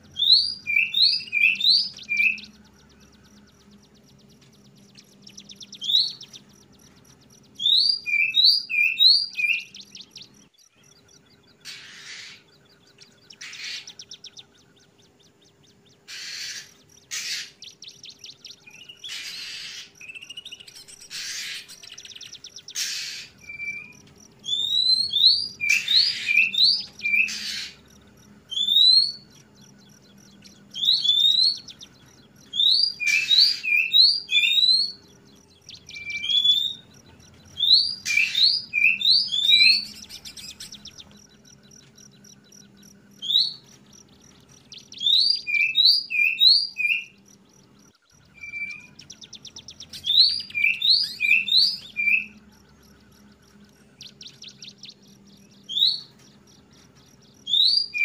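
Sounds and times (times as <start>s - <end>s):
faint steady hum: 0.0s - 58.0s
bird whistled calls: 0.1s - 3.2s, 4.9s - 6.5s, 7.4s - 10.3s, 16.0s - 27.8s, 28.5s - 29.4s, 30.1s - 35.0s, 35.6s - 41.2s, 44.7s - 47.2s, 48.2s - 52.5s, 57.4s - 58.0s
bird harsh rasping notes: 11.6s - 14.5s, 16.0s - 29.4s.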